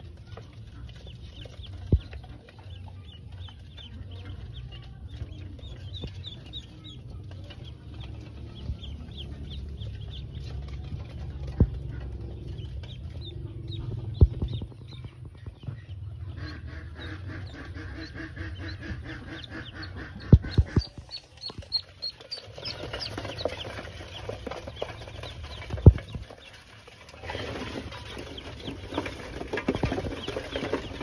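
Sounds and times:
ducklings peeping: 0.0s - 31.0s
sharp thumps: 11.5s - 15.9s.

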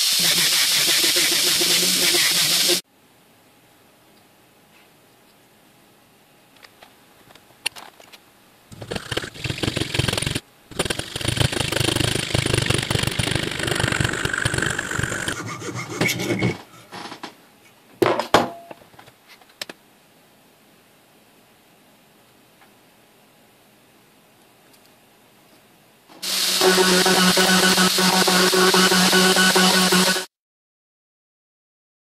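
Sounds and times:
hacksaw cutting metal: 8.8s - 16.6s, 26.2s - 30.3s.

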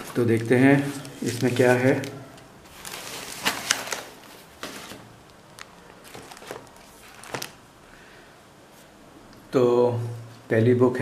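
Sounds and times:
comic books handled: 0.0s - 7.6s
packing wrap rustling and crinkling: 0.0s - 7.6s.

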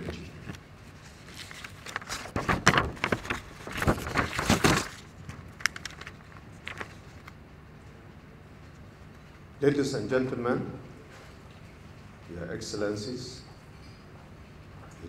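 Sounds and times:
paper sheets rustling: 0.1s - 7.4s.

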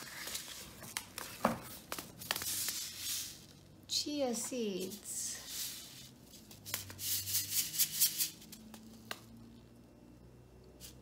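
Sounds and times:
paper rustling: 0.0s - 3.6s.

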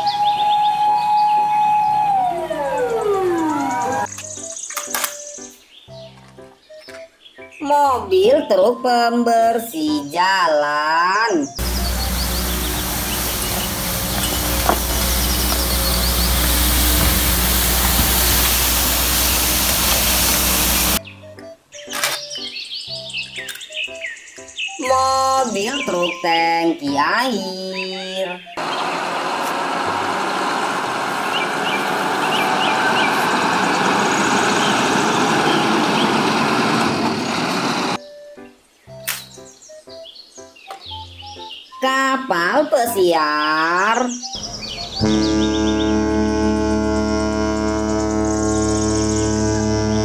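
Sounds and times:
truck driving past: 0.0s - 4.1s, 11.6s - 21.0s, 28.6s - 38.0s, 44.4s - 50.0s
street sweeper engine humming: 0.0s - 4.2s, 11.6s - 21.0s, 28.6s - 38.0s, 44.4s - 50.0s
birds chirping: 0.0s - 8.4s, 10.0s - 50.0s
brushes sweeping paving: 11.6s - 21.0s, 29.2s - 38.0s.

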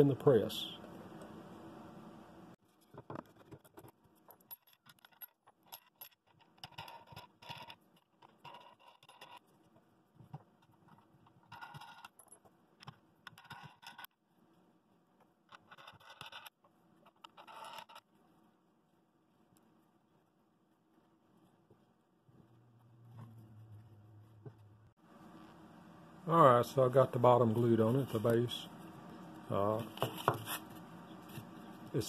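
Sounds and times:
scraping or rubbing: 27.8s - 31.9s.

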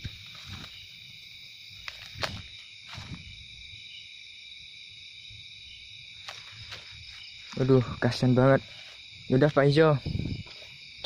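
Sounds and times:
night insects chorus: 0.0s - 11.0s.

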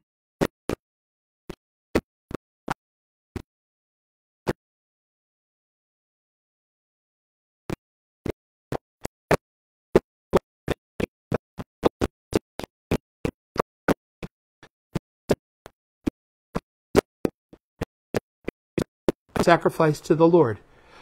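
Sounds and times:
man's voice chopped into fragments: 19.4s - 20.6s.

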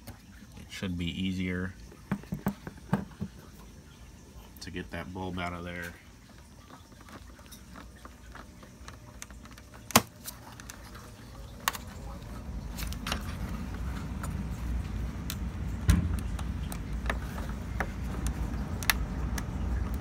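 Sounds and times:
plastic clicks and knocks: 2.1s - 3.4s
low rumbling handling noise: 5.6s - 20.0s.

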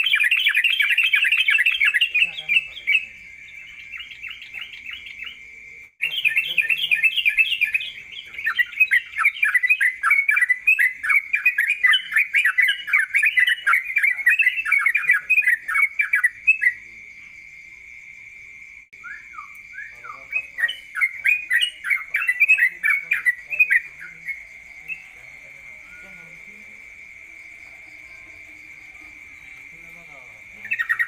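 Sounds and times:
songbird singing chattering notes: 0.0s - 18.2s, 18.8s - 31.0s.

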